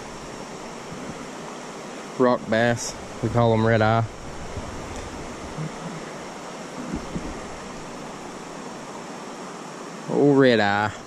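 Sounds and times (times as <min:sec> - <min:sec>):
creek water rushing: 0:00.0 - 0:11.0.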